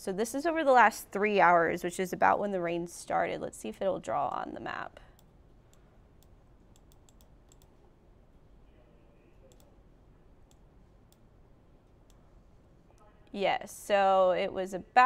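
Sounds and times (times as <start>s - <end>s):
computer control clicks: 6.2s - 7.7s, 9.5s - 9.7s.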